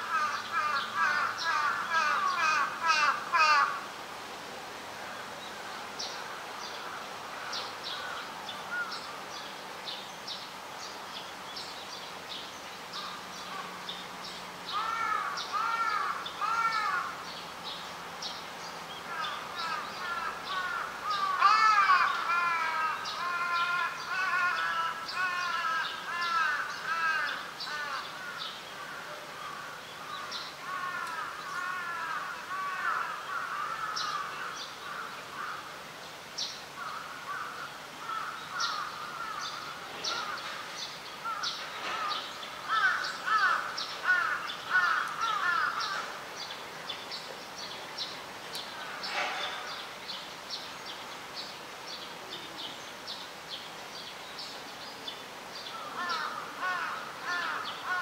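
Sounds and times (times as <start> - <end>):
birds calling: 0.0 - 4.0, 5.0 - 58.0.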